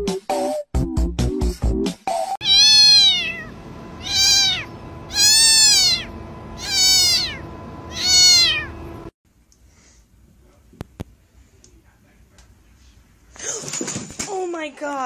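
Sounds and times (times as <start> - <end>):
cat meowing loudly: 2.4 - 8.7.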